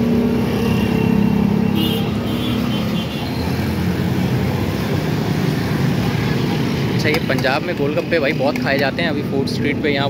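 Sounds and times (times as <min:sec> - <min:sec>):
main road traffic noise: 0:00.0 - 0:10.0.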